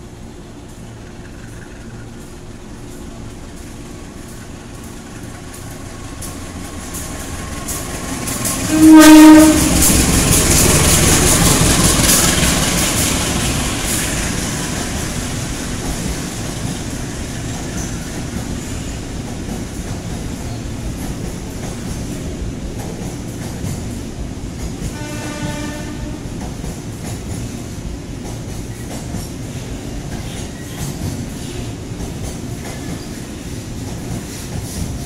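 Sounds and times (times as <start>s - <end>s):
locomotive engine rumble: 0.0s - 23.1s
locomotive horn blast: 8.6s - 10.1s, 24.9s - 26.3s.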